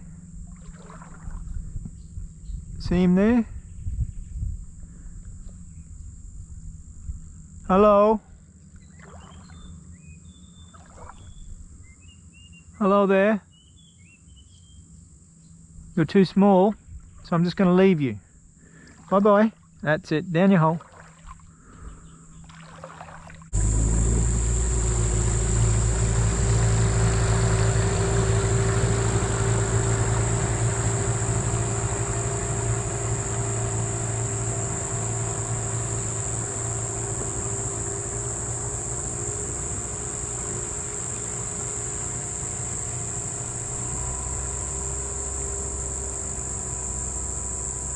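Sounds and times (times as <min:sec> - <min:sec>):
outboard motor running: 0:00.0 - 0:03.4, 0:04.6 - 0:12.4, 0:18.6 - 0:19.8, 0:20.8 - 0:47.9
high insect buzz: 0:23.6 - 0:47.9.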